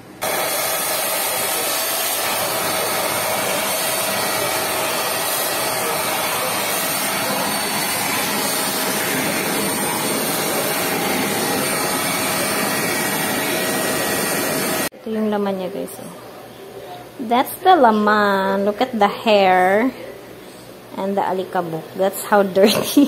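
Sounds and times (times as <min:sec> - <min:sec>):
vacuum cleaner running: 0:00.0 - 0:14.9.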